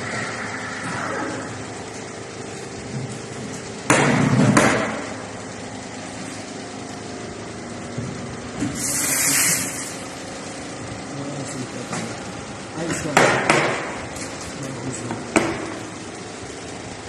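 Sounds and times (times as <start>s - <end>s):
machine hum: 0.0s - 17.0s
steam wand hissing: 8.8s - 10.0s
loud knocks: 13.1s - 13.9s.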